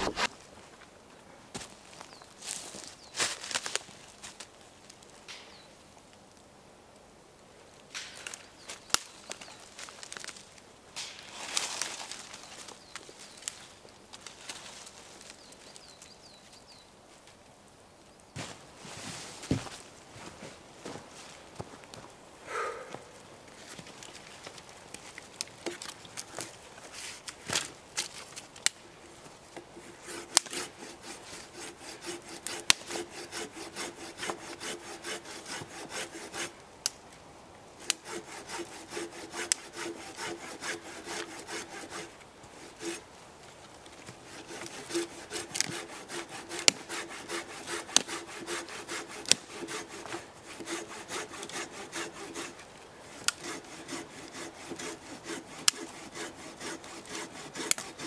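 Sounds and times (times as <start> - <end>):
hand saw cutting wood: 0.0 - 0.3, 29.6 - 36.6, 37.8 - 43.1, 44.1 - 58.0.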